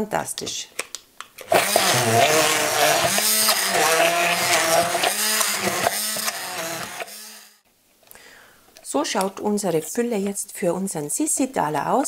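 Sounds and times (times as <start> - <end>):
stick blender motor humming: 1.4 - 7.6.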